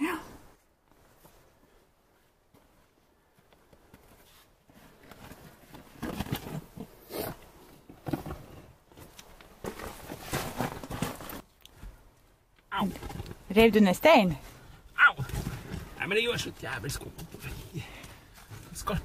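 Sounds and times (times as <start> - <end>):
stones scraping underfoot: 4.0 - 11.6.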